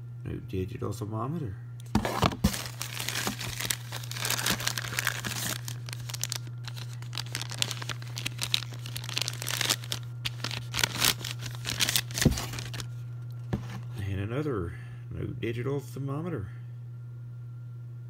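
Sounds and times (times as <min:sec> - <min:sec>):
steady low hum: 0:00.0 - 0:18.0
plastic air pillows crinkling: 0:01.9 - 0:12.9.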